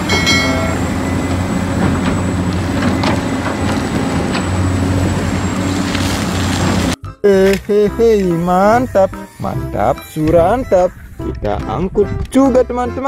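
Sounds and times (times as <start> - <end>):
excavator diesel engine running: 0.0 - 7.0.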